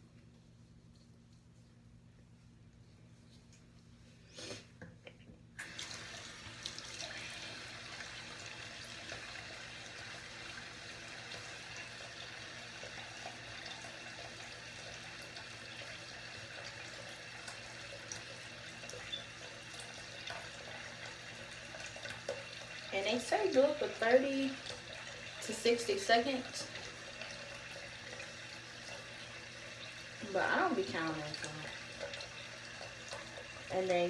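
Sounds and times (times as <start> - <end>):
water running from sink tap: 5.6 - 34.0.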